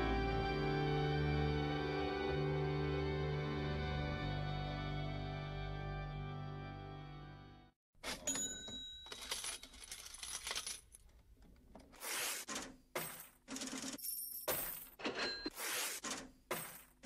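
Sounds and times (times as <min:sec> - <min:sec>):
coins clinking on a hard surface: 0:08.1 - 0:11.1, 0:13.0 - 0:15.8.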